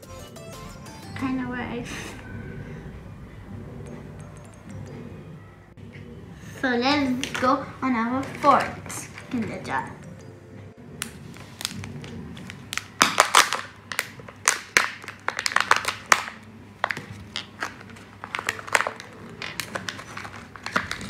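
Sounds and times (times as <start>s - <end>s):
foil and plastic crinkling: 11.0s - 21.0s.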